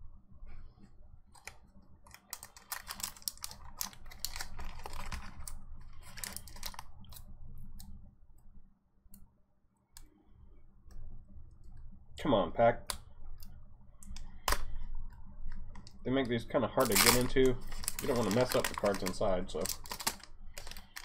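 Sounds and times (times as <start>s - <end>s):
foil wrapper crinkling: 1.4s - 7.3s, 16.7s - 21.0s.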